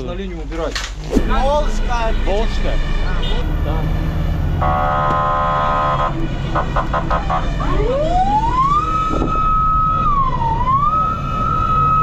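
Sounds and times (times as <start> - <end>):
fire engine siren wailing: 1.8 - 12.0
fire engine horn blasts: 2.1 - 3.6, 4.6 - 7.8.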